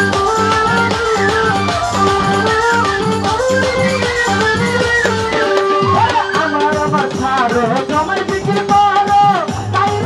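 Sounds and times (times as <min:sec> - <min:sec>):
violin sliding melody: 0:00.0 - 0:07.0
drum beat: 0:00.0 - 0:10.0.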